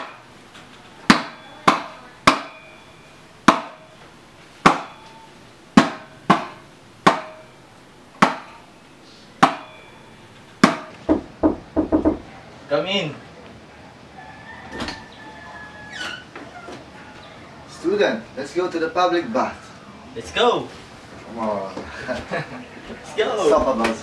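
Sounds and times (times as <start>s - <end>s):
knocks on a wooden door: 10.6s - 12.2s.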